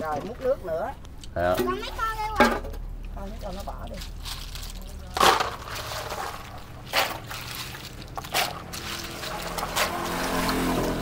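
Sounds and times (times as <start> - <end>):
dipper scooping water: 3.4 - 11.0
water splashes in basin: 4.2 - 11.0.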